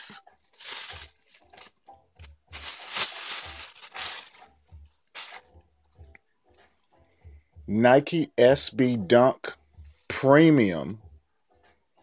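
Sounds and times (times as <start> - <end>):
plastic bag rustling: 0.4 - 5.4.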